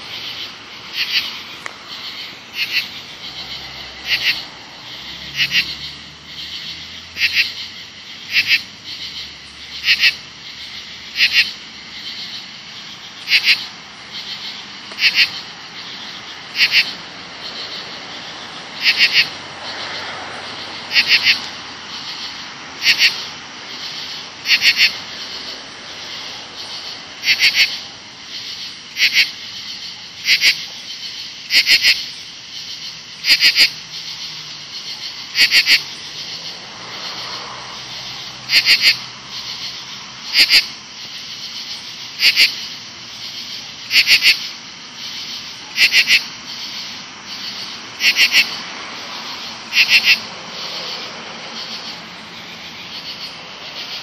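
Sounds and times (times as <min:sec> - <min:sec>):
insects calling in raspy pulses: 0:00.0 - 0:54.0
steady high-pitched insect hum: 0:00.0 - 0:54.0.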